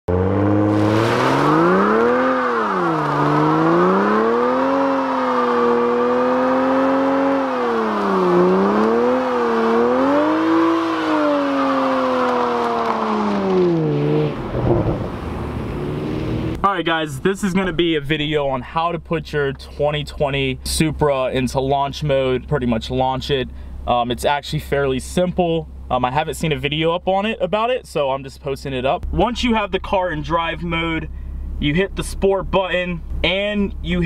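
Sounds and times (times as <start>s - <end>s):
car engine revving: 0.1s - 18.0s.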